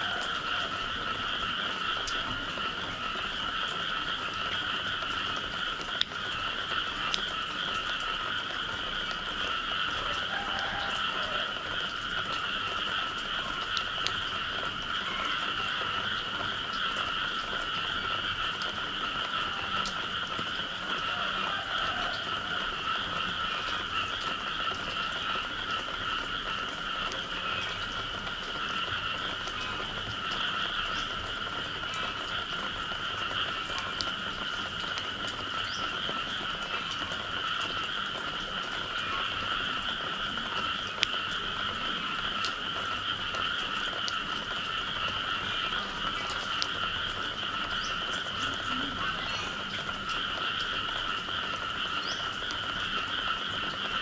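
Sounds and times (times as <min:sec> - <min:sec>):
chorus of frogs calling: 0:00.0 - 0:54.0
faint ticks: 0:07.0 - 0:07.3.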